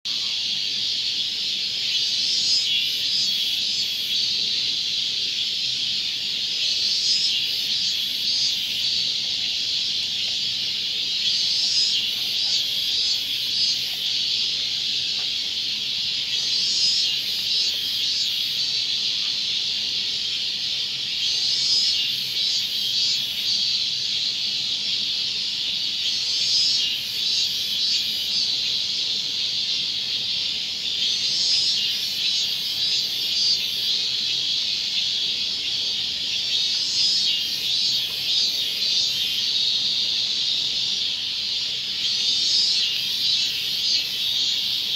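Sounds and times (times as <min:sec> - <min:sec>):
cicada buzzing: 0:00.1 - 0:44.9.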